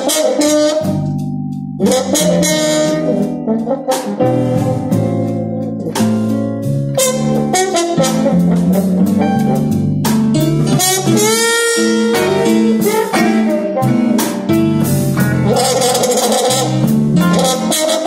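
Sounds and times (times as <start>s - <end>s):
blues band playing: 0.0s - 18.0s
electric guitar bending note: 10.4s - 18.0s.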